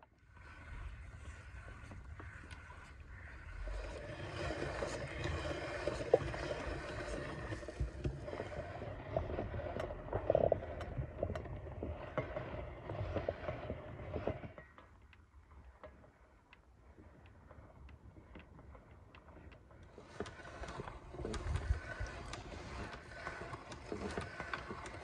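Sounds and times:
meat grinder crunching: 20.0s - 25.0s.

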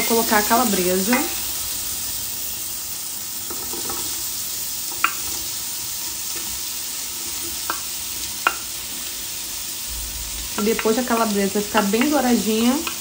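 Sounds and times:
bacon sizzling in oil: 0.0s - 13.0s
wooden spoon clicks: 12.8s - 13.0s.

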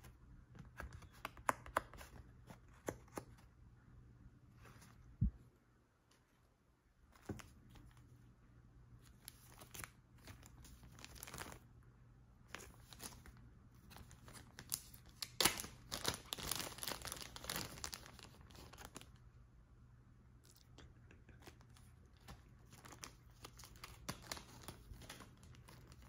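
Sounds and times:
plastic bag crinkling: 9.2s - 11.6s, 12.5s - 19.1s.

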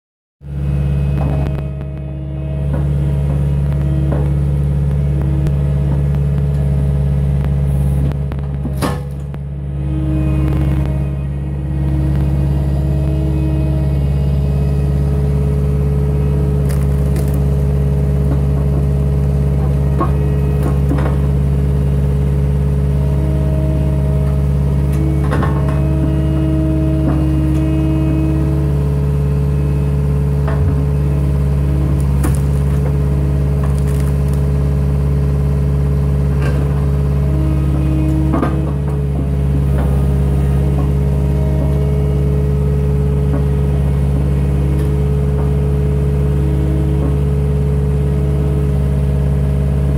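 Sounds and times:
diesel engine running: 0.4s - 49.9s
hydraulic whine: 0.4s - 49.9s
wood cracking and knocking: 16.6s - 18.8s, 32.0s - 34.7s.

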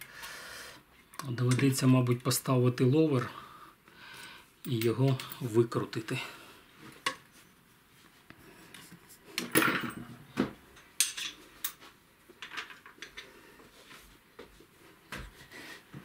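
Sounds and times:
metal rifle parts clinking: 4.6s - 5.6s, 10.8s - 11.8s.

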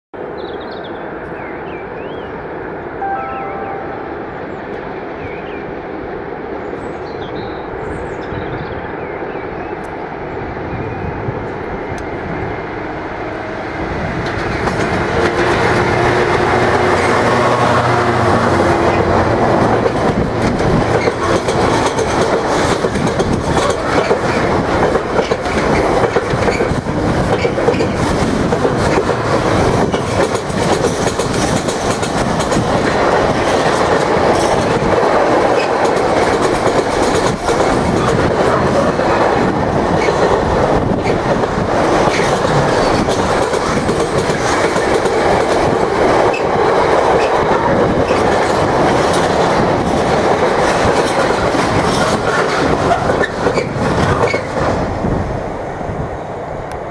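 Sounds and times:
diesel locomotive engine passing: 0.2s - 56.9s
train wheels clattering over rail joints: 14.2s - 17.2s, 18.6s - 55.0s.

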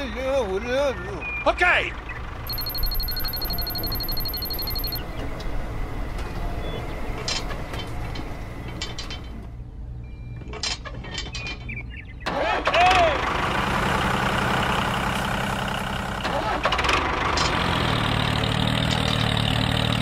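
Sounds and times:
rapid ticking with high tone: 2.5s - 5.0s.

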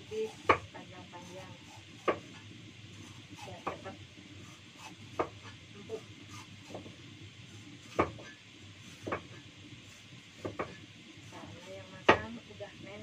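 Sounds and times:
knife knocking on cutting board: 5.2s - 5.4s, 7.9s - 8.3s, 9.0s - 9.3s, 10.4s - 10.8s.

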